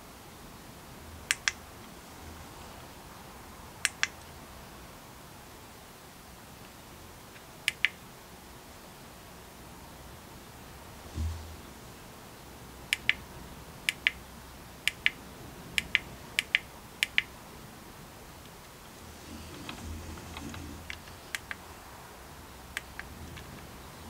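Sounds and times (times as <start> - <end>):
low mechanical rattle with ticks: 18.5 - 21.6.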